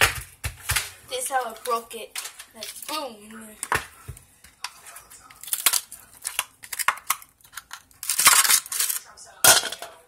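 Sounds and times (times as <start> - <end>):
ice cubes cracking loose: 5.4 - 9.0
plastic ice tray twisting: 5.4 - 9.0.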